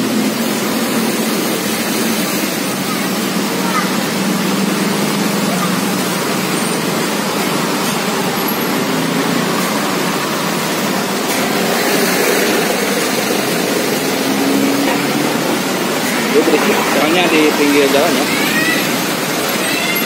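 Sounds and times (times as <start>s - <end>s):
roadside traffic rush: 0.0s - 20.0s.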